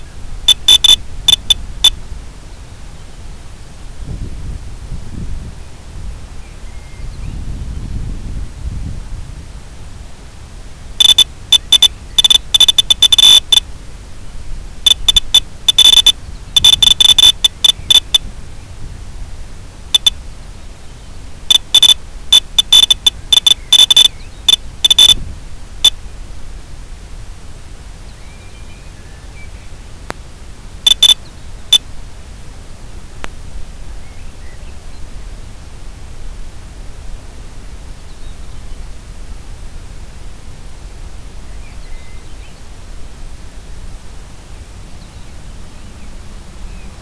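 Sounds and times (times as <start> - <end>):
rapid high-pitched electronic beeps: 0.0 - 2.0, 11.0 - 13.6, 14.8 - 18.2, 20.0 - 20.2, 21.5 - 25.2, 30.8 - 31.2
static hiss: 0.0 - 47.0.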